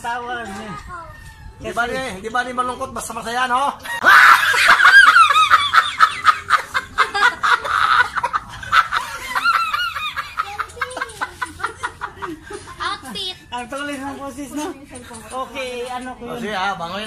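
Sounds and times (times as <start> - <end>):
man laughing hard: 3.8 - 12.8.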